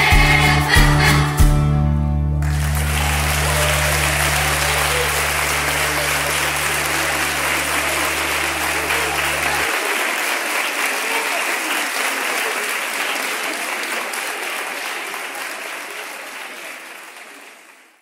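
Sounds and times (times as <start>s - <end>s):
music: 0.0s - 9.6s
low held note: 2.4s - 9.6s
audience applause: 2.4s - 18.0s.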